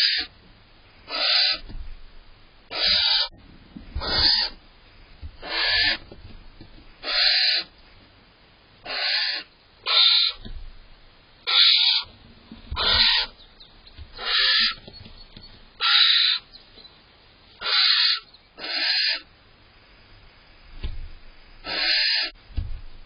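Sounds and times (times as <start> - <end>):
barn owl rasping hissing calls: 0.0 - 0.3, 1.0 - 1.7, 2.7 - 4.6, 5.4 - 6.0, 7.0 - 7.7, 8.8 - 10.5, 11.4 - 12.1, 12.7 - 13.4, 14.1 - 14.9, 15.8 - 16.6, 17.5 - 19.3, 21.6 - 22.4.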